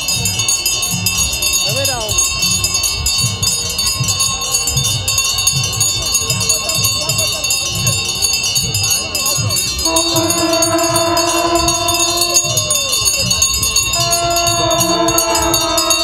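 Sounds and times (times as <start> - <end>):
crowd: 0.0 - 16.0
small bells jingling: 0.0 - 16.0
low beat: 9.4 - 16.0
voice holding a long note: 9.8 - 16.0.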